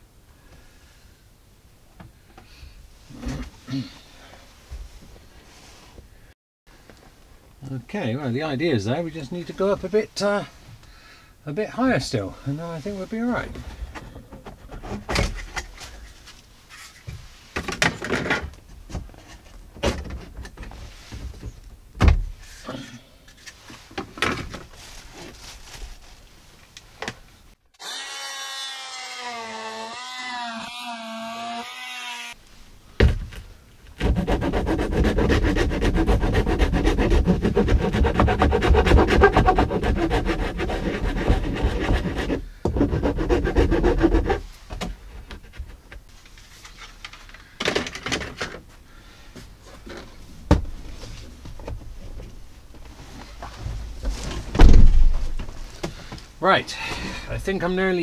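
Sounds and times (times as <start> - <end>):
multi-tool cutting plastic: 27.8 - 32.4, 34.0 - 44.4.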